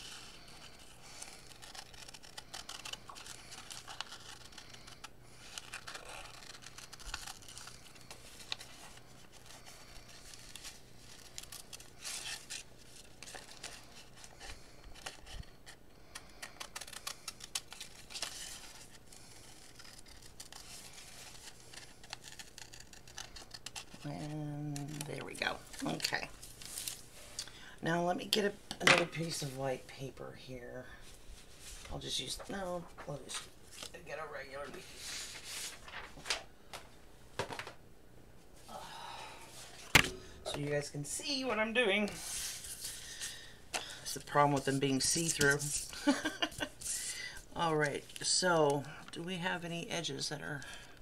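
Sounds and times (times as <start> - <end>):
stiff paper crinkling: 0.1 - 27.1, 34.9 - 36.5
scissors snipping paper: 0.6 - 8.8, 16.1 - 25.2.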